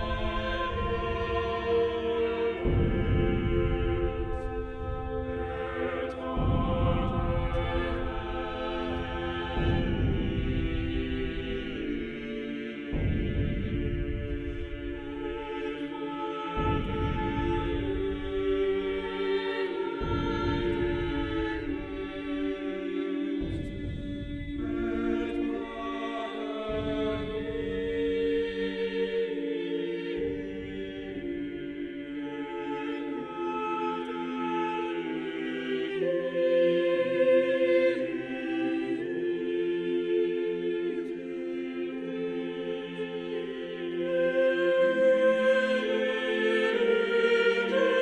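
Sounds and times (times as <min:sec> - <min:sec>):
choir singing slow chords: 0:00.0 - 0:48.0
low rumble: 0:02.6 - 0:12.2, 0:23.4 - 0:25.8.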